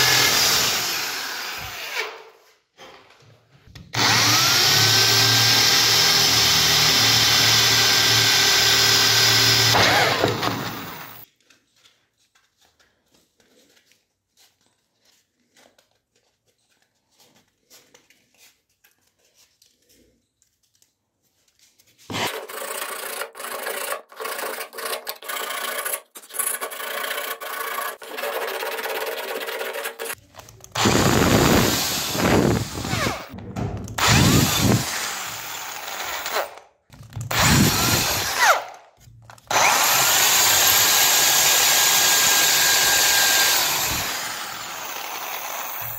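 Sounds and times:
drill press motor running: 4.0s - 11.2s, 34.0s - 36.4s, 37.3s - 38.4s, 39.5s - 45.9s.

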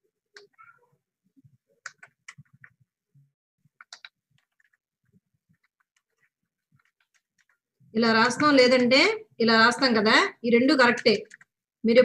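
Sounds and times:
computer keyboard typing: 1.8s - 2.8s, 3.8s - 4.9s, 5.5s - 7.7s, 10.8s - 11.6s.

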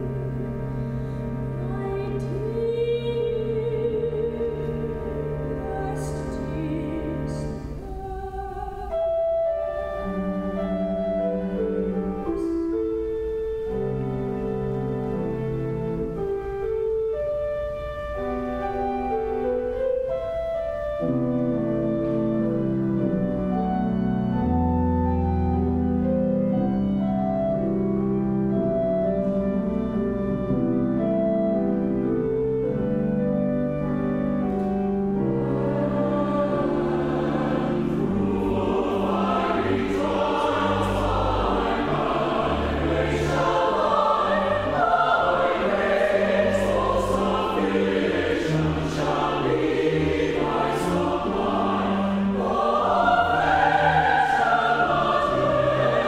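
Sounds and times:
pipe organ chords: 0.0s - 8.0s, 8.9s - 56.0s
choir singing: 1.6s - 9.1s, 35.0s - 56.0s.

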